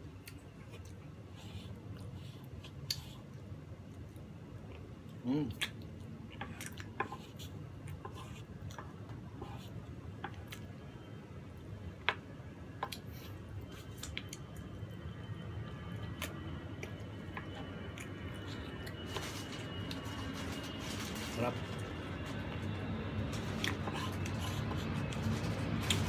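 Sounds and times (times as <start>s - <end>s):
chewing: 0.2s - 9.0s.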